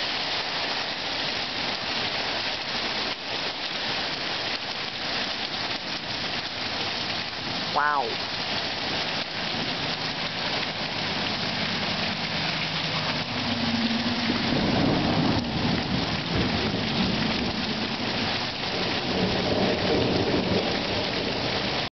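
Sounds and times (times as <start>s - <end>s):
heavy rain falling: 0.0s - 21.9s
thunder rumbling: 9.5s - 21.9s.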